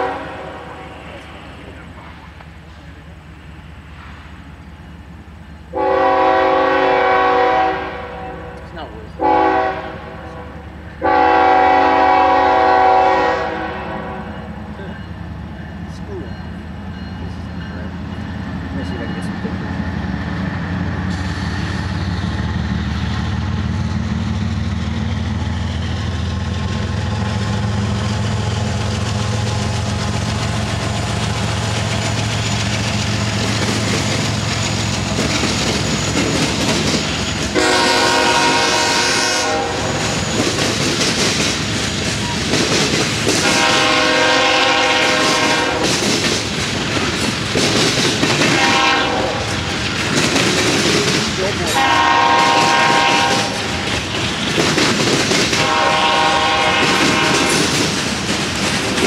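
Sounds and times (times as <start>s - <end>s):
diesel locomotives rumbling: 0.0s - 59.0s
train wheels clattering over rails: 14.4s - 59.0s.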